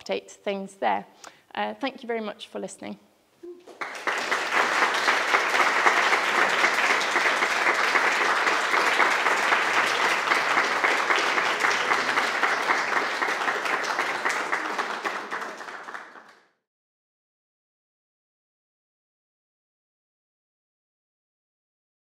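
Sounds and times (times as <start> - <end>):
audience applauding: 3.6 - 16.6.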